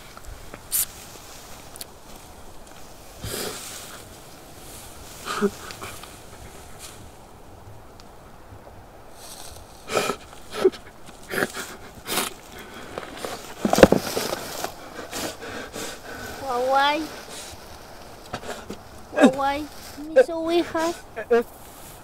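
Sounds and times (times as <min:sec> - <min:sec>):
sniffs: 0:00.7 - 0:01.0, 0:03.2 - 0:04.1, 0:04.8 - 0:07.1, 0:09.1 - 0:18.8, 0:19.7 - 0:22.0
man crying and sobbing: 0:18.4 - 0:21.5.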